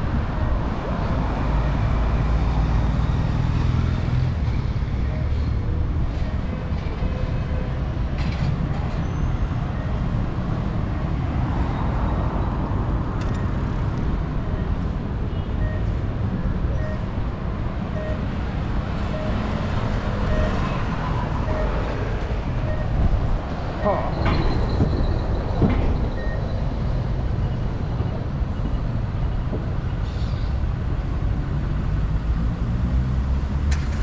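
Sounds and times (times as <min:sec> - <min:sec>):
road traffic rumble: 0:00.0 - 0:34.0
faint short beeps: 0:16.7 - 0:17.1.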